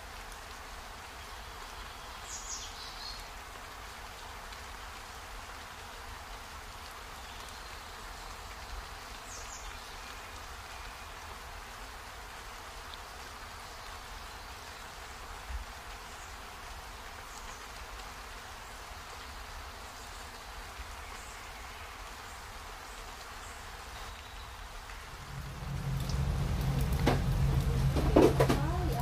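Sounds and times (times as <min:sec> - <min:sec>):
low hum: 0:25.0 - 0:29.0.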